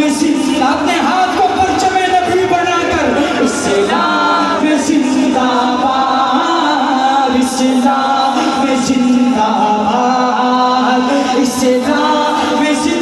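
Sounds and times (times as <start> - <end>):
man singing into microphone: 0.0 - 13.0.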